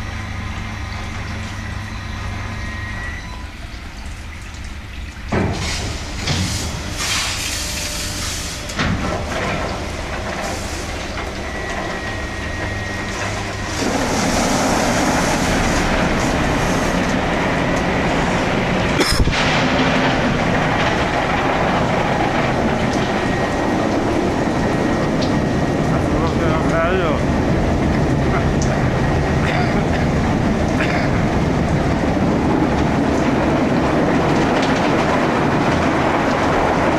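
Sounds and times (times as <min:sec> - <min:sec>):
car wash brushes and water spray: 0:05.3 - 0:26.6.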